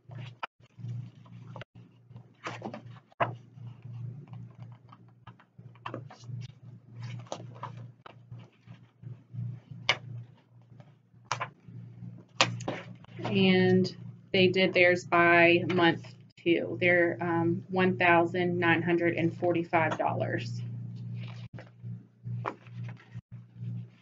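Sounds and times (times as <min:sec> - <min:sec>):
paper rustling and pages turning: 0:00.0 - 0:13.2, 0:21.1 - 0:21.7, 0:22.4 - 0:24.0
steady low hum: 0:00.0 - 0:24.0.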